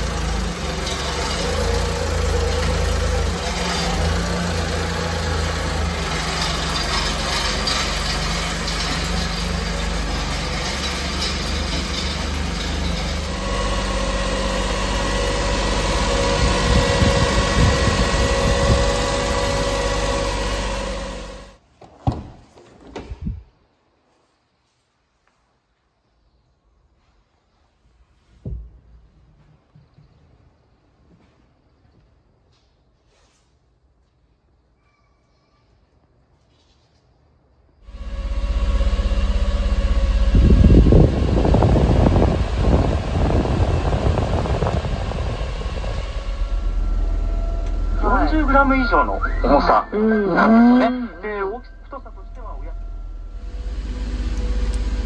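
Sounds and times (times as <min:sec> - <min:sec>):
heater blower fan running: 0:00.0 - 0:21.6, 0:37.9 - 0:55.0
small truck engine idling: 0:00.0 - 0:21.6, 0:37.9 - 0:55.0
air rushing from vents: 0:12.0 - 0:21.4, 0:37.9 - 0:48.4.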